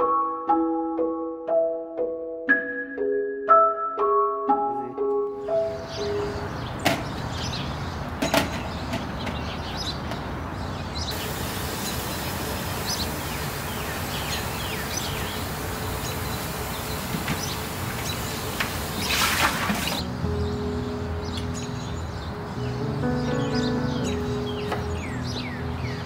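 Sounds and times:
tap water running onto fruit: 0:11.1 - 0:20.0.

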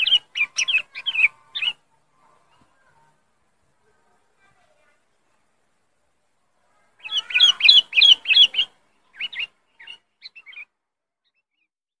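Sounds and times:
bird calling with whistled notes: 0:00.0 - 0:01.8, 0:07.0 - 0:10.7.

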